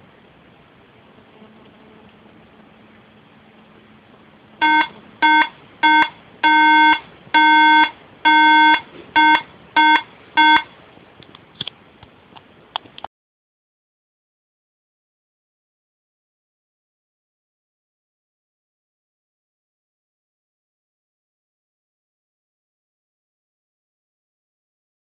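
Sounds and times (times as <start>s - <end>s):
short and long beeps: 4.6s - 10.7s.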